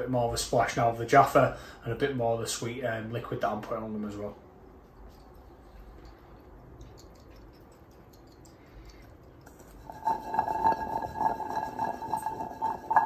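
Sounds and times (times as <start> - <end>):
balls rattling in metal saucepan: 9.4 - 13.0.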